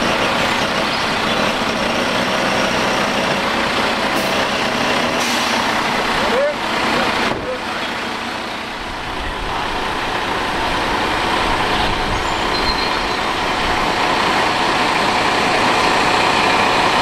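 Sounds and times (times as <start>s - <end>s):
diesel engine running: 0.0s - 17.0s.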